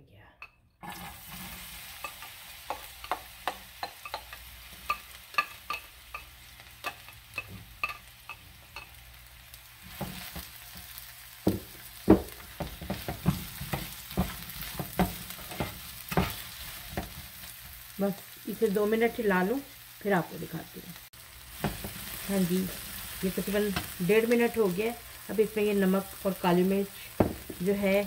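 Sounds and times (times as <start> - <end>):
onion sizzling in hot oil: 0.8 - 28.0
spatula knocking against pan: 11.4 - 16.4.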